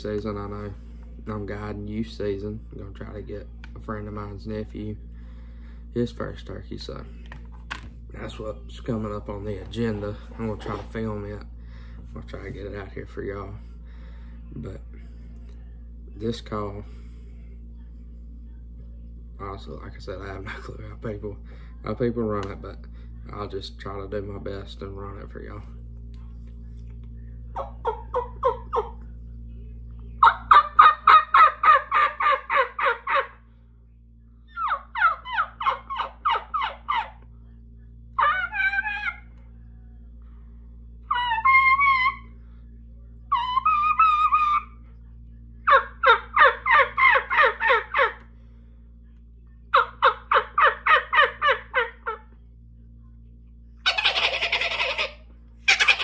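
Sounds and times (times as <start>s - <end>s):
turkey call yelps: 30.2s - 33.4s, 34.5s - 37.2s, 38.2s - 39.3s, 41.1s - 42.3s, 43.3s - 44.7s, 45.6s - 48.2s, 49.7s - 52.2s, 53.9s - 56.0s.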